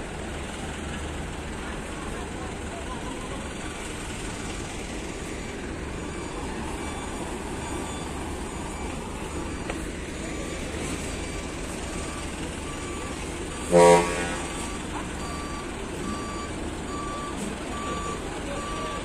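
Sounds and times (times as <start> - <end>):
vehicle engines rumbling: 0.0 - 19.0
vehicle horn toot: 13.5 - 14.8.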